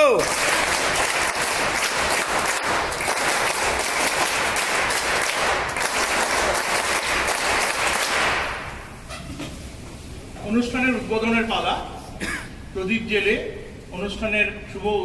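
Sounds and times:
audience applauding: 0.0 - 8.8.

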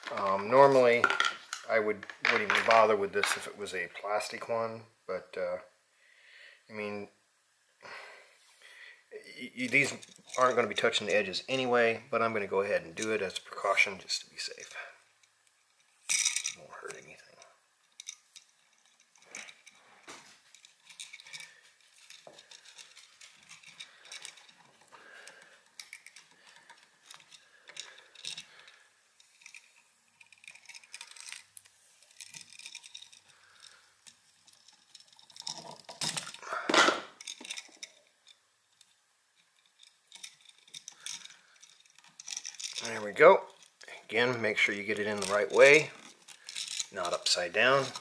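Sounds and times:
handling clicks and rustles: 14.5 - 48.0.

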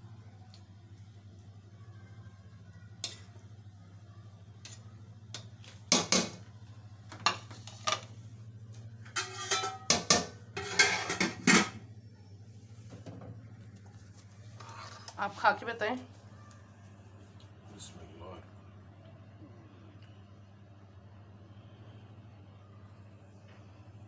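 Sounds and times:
metal spoon scraping a pot: 9.1 - 9.9, 10.6 - 11.8, 14.6 - 15.2.

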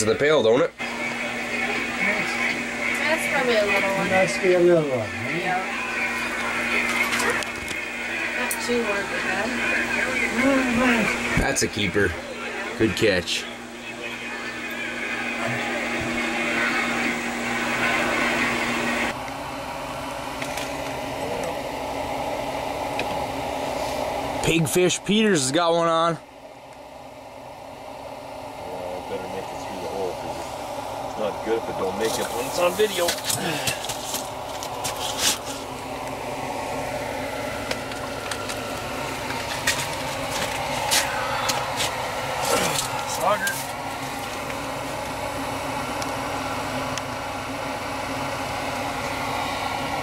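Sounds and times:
mechanical hum and whir: 0.0 - 50.0.

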